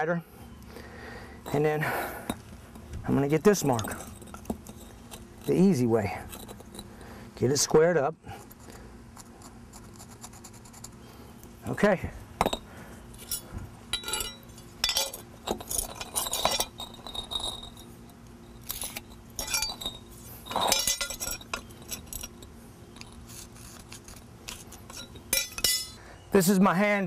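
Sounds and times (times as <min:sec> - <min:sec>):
pavers and metal square clinking: 0:01.4 - 0:07.0, 0:12.4 - 0:26.0.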